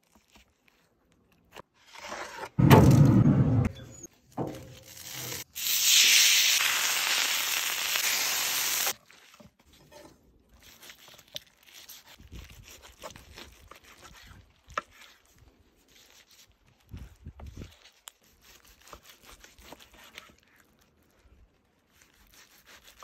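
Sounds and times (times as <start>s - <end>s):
steak sizzling on a grill: 4.9s - 8.9s.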